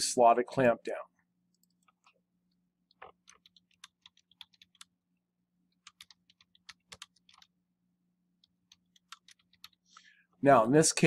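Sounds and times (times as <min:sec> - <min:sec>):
typing on computer keyboard: 0:02.9 - 0:04.9, 0:05.7 - 0:07.6, 0:08.4 - 0:09.9.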